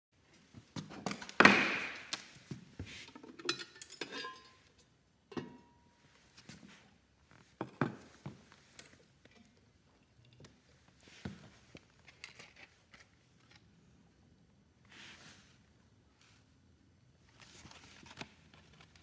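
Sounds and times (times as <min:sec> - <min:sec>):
metal cover clunks and clinks: 0:03.2 - 0:04.6, 0:05.3 - 0:05.8.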